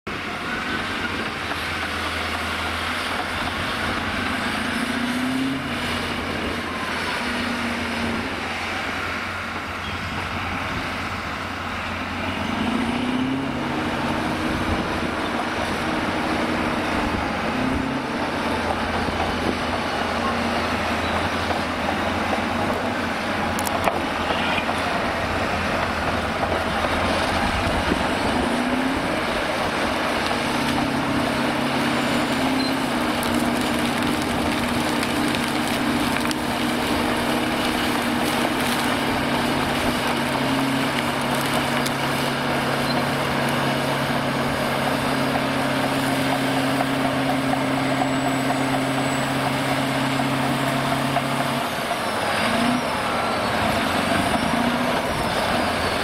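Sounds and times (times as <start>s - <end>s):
bulldozer diesel engine revving: 0.1s - 56.0s.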